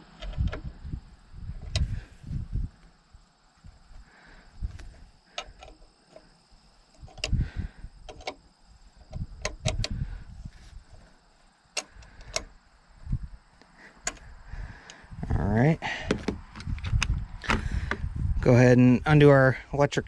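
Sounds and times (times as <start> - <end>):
dull knocks and bumps: 15.9 - 18.1.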